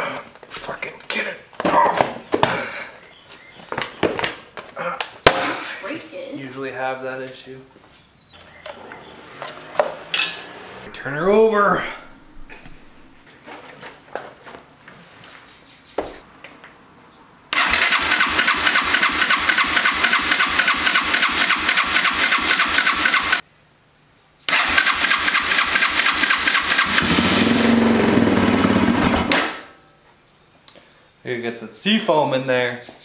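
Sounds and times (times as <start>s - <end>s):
electric starter cranking engine: 17.5s - 23.4s, 24.5s - 29.4s.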